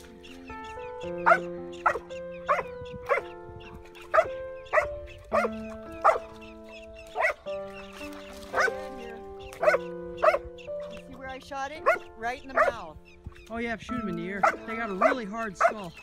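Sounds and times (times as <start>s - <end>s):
dog barking: 1.2s - 3.4s, 4.1s - 6.3s, 7.1s - 7.4s, 8.6s - 8.8s, 9.6s - 10.5s, 11.8s - 12.8s, 14.4s - 15.9s.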